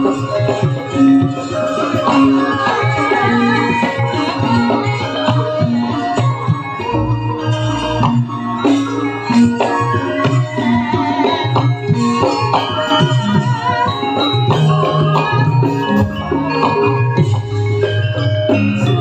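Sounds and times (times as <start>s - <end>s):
metallophones ringing: 0.0s - 19.0s.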